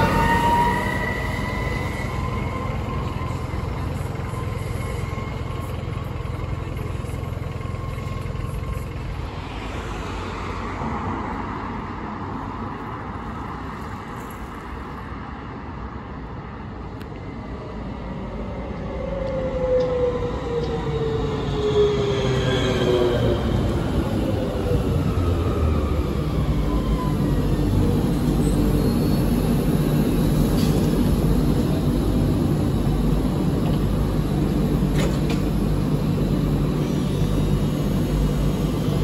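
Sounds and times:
tram rumble and electric whine: 0.0s - 39.0s.

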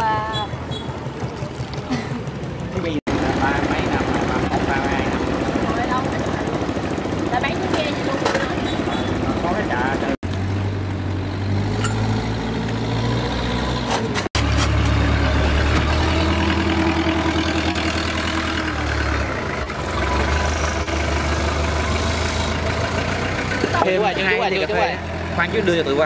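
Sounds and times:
boat engine idling: 0.5s - 10.0s.

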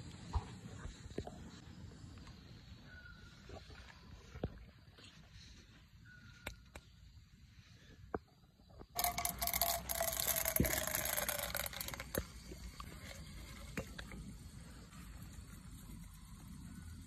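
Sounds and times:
light clicks of kernels and pot: 9.0s - 14.2s.

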